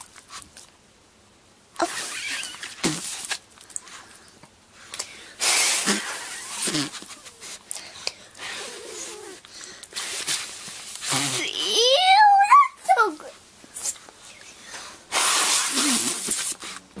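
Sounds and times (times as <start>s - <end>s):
dog sniffing with breathy hiss: 1.8s - 11.4s, 13.8s - 16.9s.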